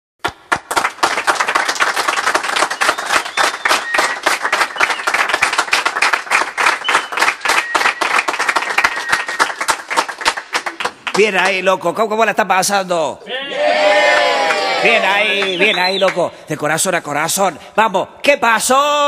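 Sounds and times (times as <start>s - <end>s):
audience applauding: 0.2s - 11.7s, 14.0s - 16.2s.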